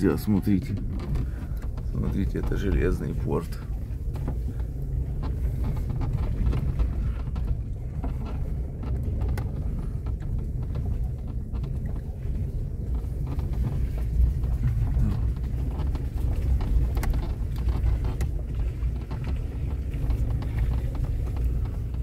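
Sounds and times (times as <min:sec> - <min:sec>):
car rumbling on dirt road: 0:00.0 - 0:22.0
small knocks and rattles: 0:00.0 - 0:22.0.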